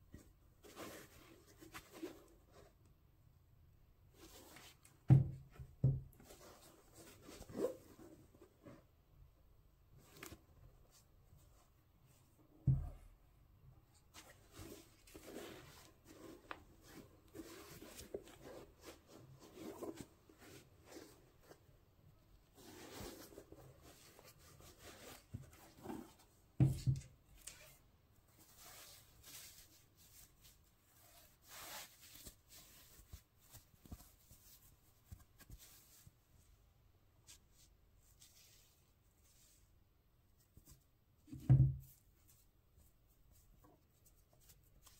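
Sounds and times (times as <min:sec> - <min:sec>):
shoe thump: 0:05.1 - 0:06.1.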